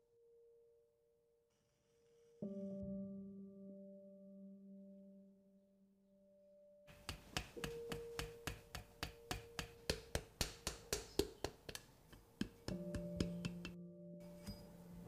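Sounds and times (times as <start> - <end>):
wooden paddle tapping clay teapot: 6.9 - 13.8
steady soft tone: 6.9 - 15.0.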